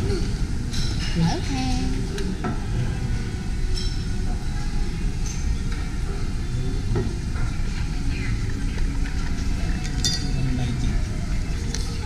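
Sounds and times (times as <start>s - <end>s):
low room rumble: 0.0s - 12.0s.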